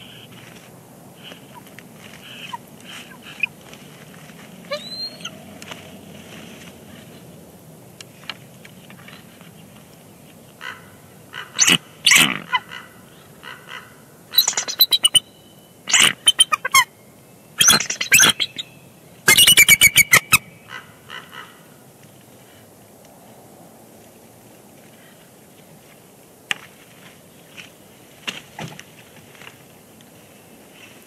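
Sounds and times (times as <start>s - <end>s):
eagles chittering: 11.4s - 15.3s, 15.9s - 16.9s, 17.6s - 21.5s.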